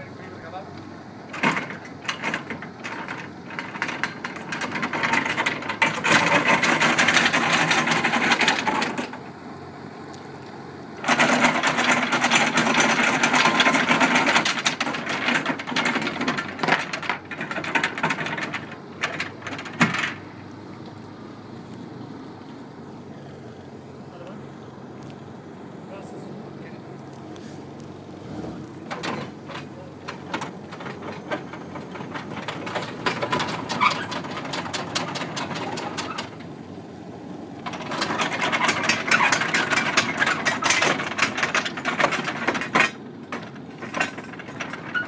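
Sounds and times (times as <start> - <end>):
anchor chain rattling: 1.3 - 9.2, 11.0 - 20.3, 28.8 - 36.4, 37.6 - 45.0
anchor clanking: 1.3 - 9.2, 11.0 - 20.4, 28.4 - 36.5, 37.6 - 45.0.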